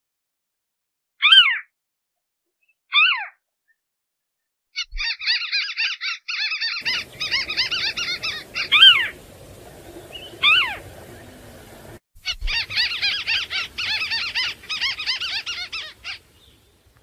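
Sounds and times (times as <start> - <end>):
bird chattering call: 6.6 - 16.6
bird calls sliding downward: 6.8 - 16.3.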